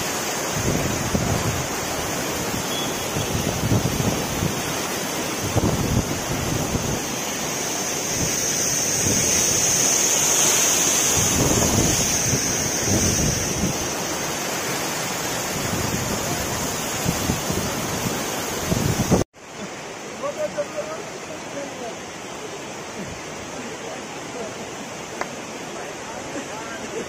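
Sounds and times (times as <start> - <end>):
waterfall rushing: 0.0 - 27.0
wind buffeting microphone: 5.4 - 7.1, 11.1 - 14.0.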